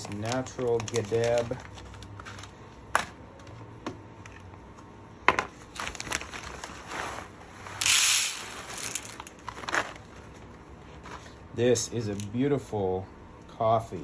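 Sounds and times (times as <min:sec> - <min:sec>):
plastic bag crinkling: 0:00.0 - 0:02.6, 0:05.7 - 0:10.2
coffee beans pouring into tray: 0:07.7 - 0:09.3.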